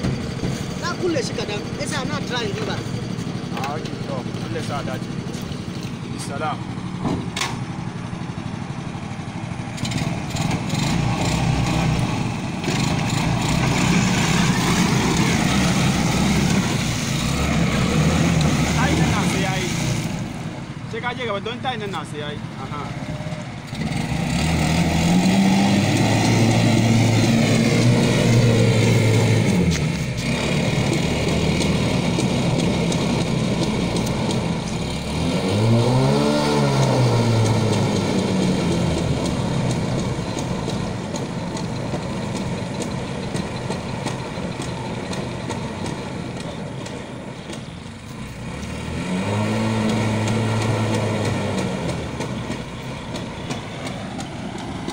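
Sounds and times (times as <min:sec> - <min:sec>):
motorbike engine revving: 0:00.0 - 0:54.9.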